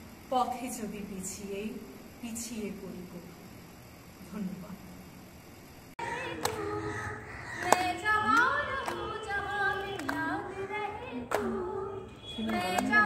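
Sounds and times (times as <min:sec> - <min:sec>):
women singing slow song: 0:06.0 - 0:13.0.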